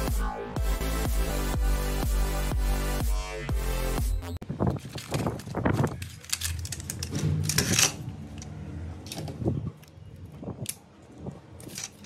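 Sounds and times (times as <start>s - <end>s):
plastic cassette cases clicking: 4.8s - 7.8s.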